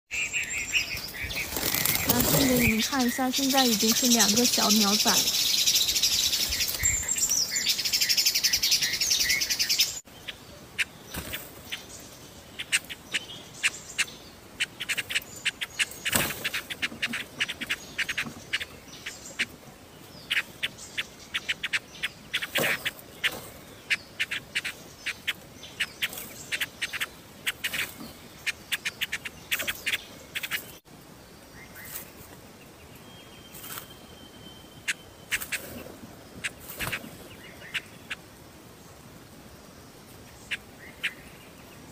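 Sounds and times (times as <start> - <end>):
nestlings chirping: 0.1 - 30.8, 34.7 - 35.8.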